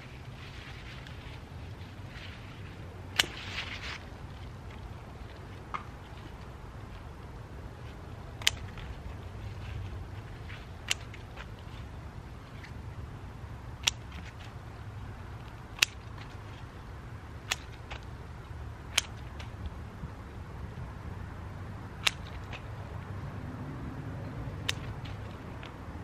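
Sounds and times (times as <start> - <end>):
scissors snipping stems: 3.2 - 3.8, 8.3 - 9.0, 10.6 - 11.7, 13.8 - 14.6, 15.4 - 16.4, 17.4 - 18.1, 18.9 - 19.6, 22.0 - 22.7, 24.6 - 25.8
scissor blades clicking: 15.8 - 16.1, 22.0 - 22.6.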